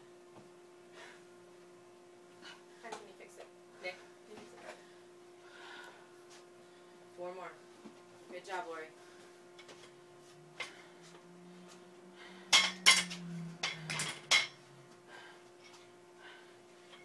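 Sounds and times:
barbell plates clanking: 0:12.5 - 0:14.6.

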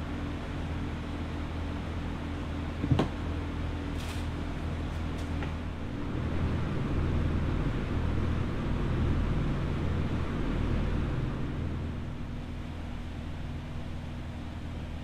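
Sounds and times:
low mechanical hum: 0:00.0 - 0:15.0
broad rumble: 0:05.6 - 0:14.0.

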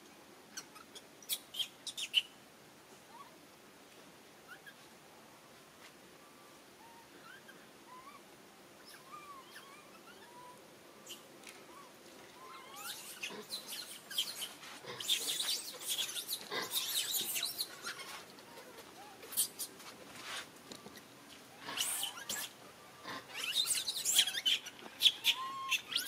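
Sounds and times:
baby monkeys squeaking: 0:08.8 - 0:19.7, 0:21.7 - 0:22.6, 0:23.3 - 0:26.0.

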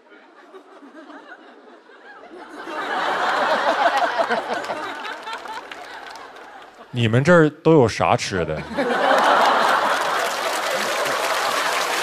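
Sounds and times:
audience laughing: 0:00.2 - 0:07.0, 0:08.2 - 0:12.0.

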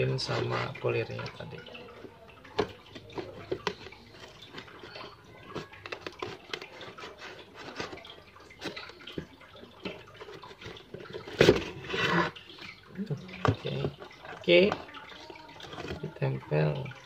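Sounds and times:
box rustling open: 0:03.0 - 0:08.9
cardboard crinkling and scraping: 0:03.0 - 0:08.9.

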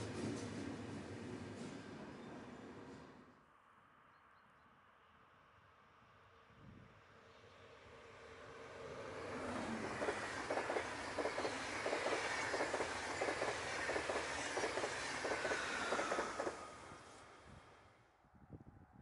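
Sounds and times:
train wheels clattering over rail joints: 0:09.6 - 0:17.1.

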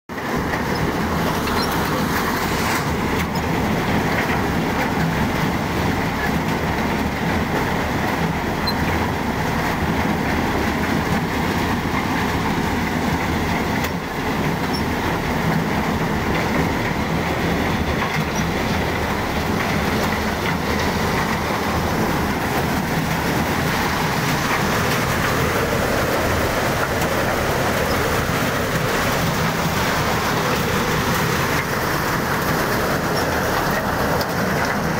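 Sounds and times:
maize sheller clattering: 0:10.0 - 0:34.9.

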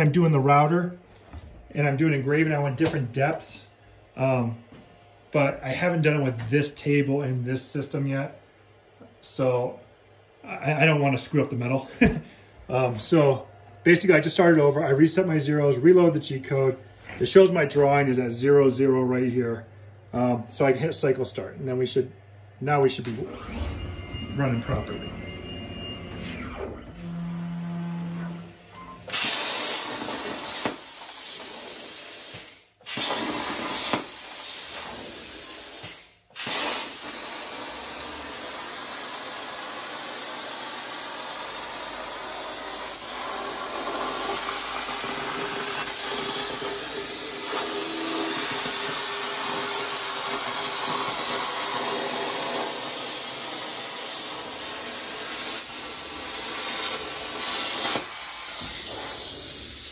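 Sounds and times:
plasma cutter hissing: 0:29.1 - 0:59.9.

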